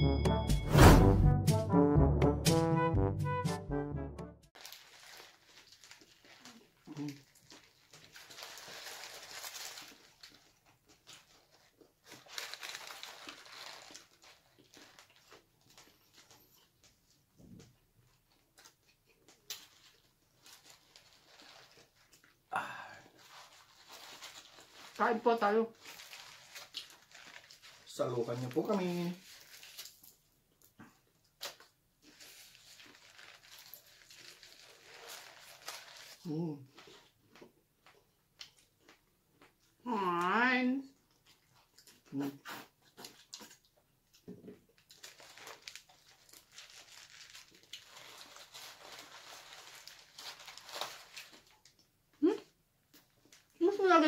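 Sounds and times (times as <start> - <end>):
fried chicken crunch: 4.6 - 16.4, 25.8 - 28.6, 31.3 - 39.6, 41.2 - 51.9
paper wrappers crinkling: 4.6 - 17.2, 18.2 - 30.3, 31.4 - 37.2, 44.8 - 51.9
wet chewing crackles and smacks: 5.4 - 8.7, 9.7 - 22.5, 36.7 - 39.8, 40.9 - 46.5.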